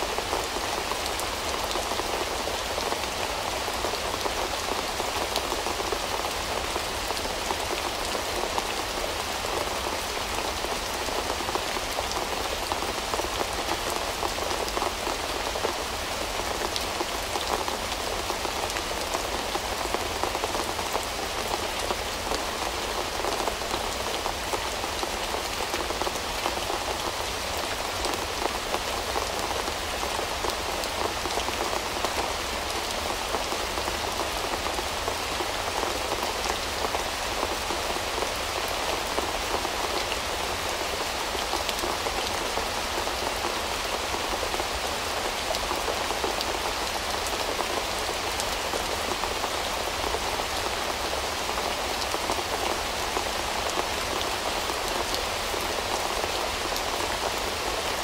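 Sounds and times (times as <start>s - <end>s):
steady rain: 0.0s - 58.0s.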